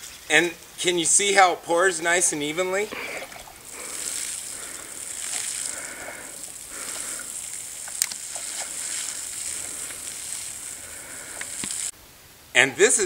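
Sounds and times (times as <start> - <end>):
water spattering onto grass: 2.8 - 11.9.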